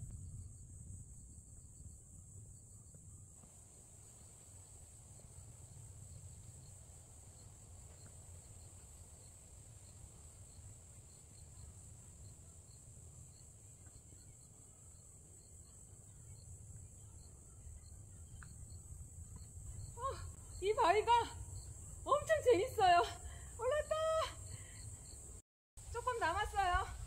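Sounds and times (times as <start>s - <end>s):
low steady rumble: 0.0s - 14.0s
high-pitched insect chorus: 0.0s - 27.0s
insect chirps: 0.0s - 27.0s.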